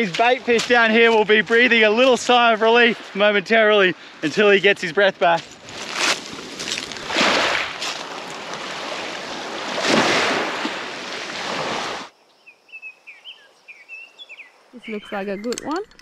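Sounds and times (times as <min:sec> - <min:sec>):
surf: 0:00.0 - 0:12.1.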